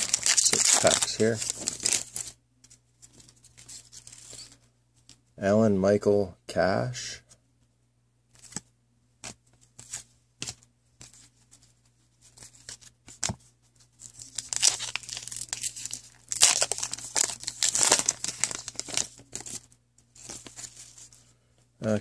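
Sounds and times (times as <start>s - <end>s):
card pack wrapper tearing: 0.0s - 2.3s, 14.0s - 19.6s.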